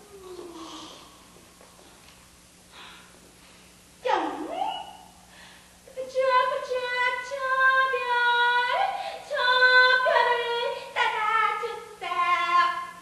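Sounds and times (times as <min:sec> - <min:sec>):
woman singing unaccompanied: 0:05.9 - 0:13.0.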